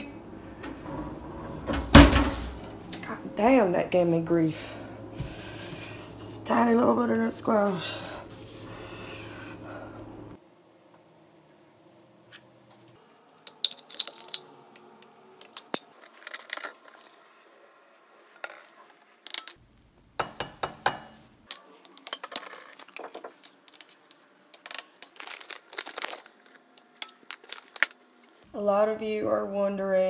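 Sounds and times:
kitchen utensils clinking: 0:13.4 - 0:16.8.

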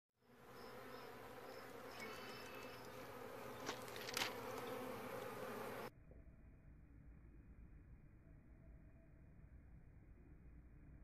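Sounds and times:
bees buzzing: 0:00.2 - 0:05.9.

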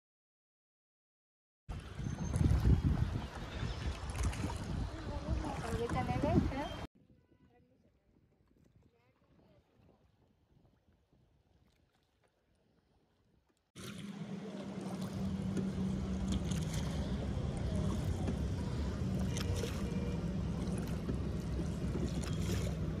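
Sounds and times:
motor humming and rushing: 0:13.8 - 0:23.0.

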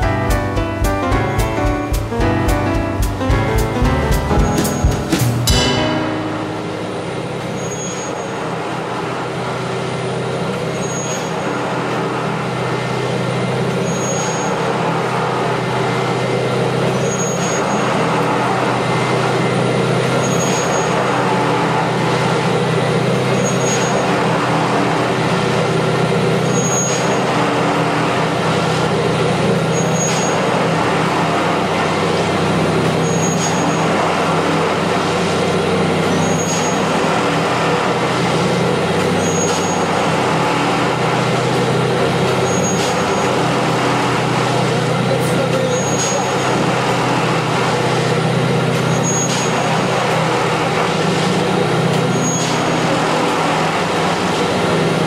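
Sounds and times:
short high pip: 0:00.0 - 0:08.4.

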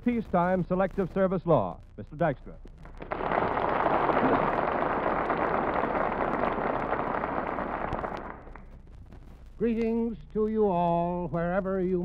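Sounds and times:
audience applauding: 0:02.8 - 0:08.7.

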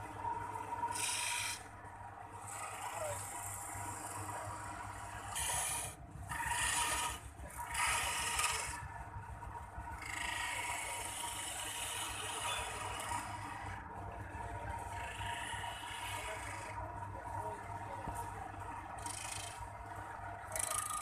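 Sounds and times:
chisel scraping spinning wood: 0:00.0 - 0:01.7, 0:02.4 - 0:08.8, 0:10.0 - 0:17.0, 0:18.9 - 0:19.7, 0:20.4 - 0:21.0
low motor hum: 0:00.0 - 0:21.0.

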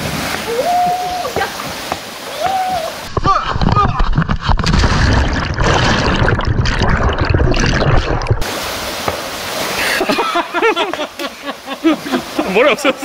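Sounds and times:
water sloshing and churning: 0:00.0 - 0:10.4
mountain stream rushing: 0:00.0 - 0:13.0.

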